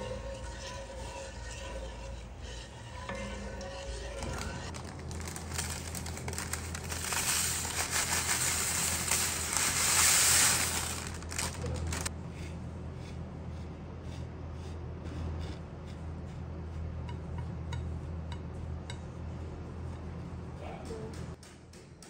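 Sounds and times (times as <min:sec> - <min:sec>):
metal spoon scraping and tapping: 0:00.0 - 0:04.7
dough rustling and crackling: 0:00.0 - 0:12.1.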